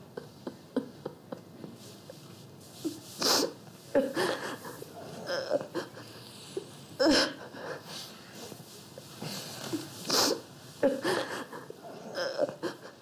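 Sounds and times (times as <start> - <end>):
man sobbing: 10.9 - 13.0.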